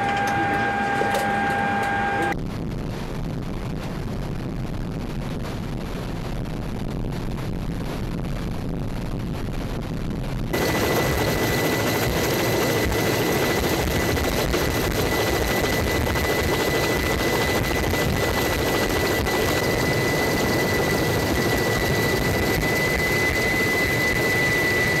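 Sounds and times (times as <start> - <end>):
high-pitched whine: 0.0 - 2.5, 10.5 - 25.0
aircraft engine noise in cabin: 0.0 - 25.0.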